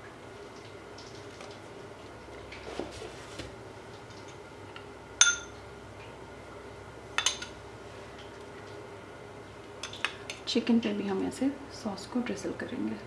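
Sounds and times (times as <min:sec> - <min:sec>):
metal spoon clinking ceramic bowl: 0:05.2 - 0:05.5, 0:07.2 - 0:07.5.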